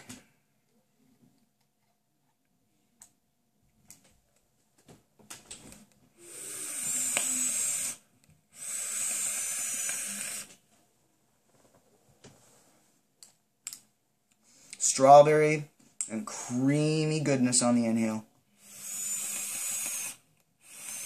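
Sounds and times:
vape coil hissing: 6.2 - 8.0, 8.6 - 10.5, 18.6 - 21.0.

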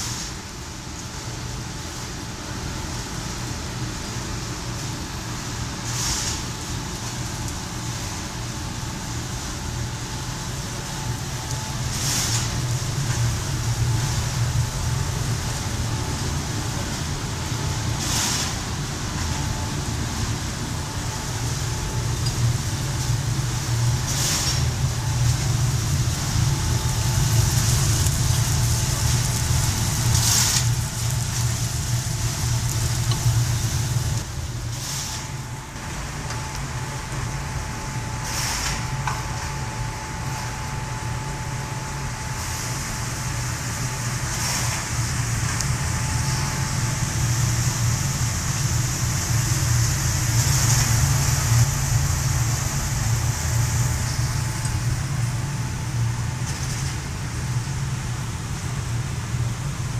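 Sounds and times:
coffee roaster drone: 0.0 - 59.9
brief hiss: 18.0 - 18.6, 38.2 - 38.9.

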